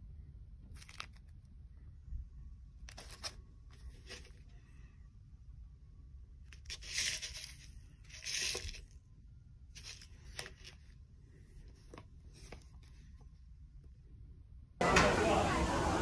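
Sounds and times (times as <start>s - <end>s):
food packets rustling: 0.7s - 1.3s, 2.9s - 4.5s, 6.6s - 8.9s, 9.8s - 11.0s.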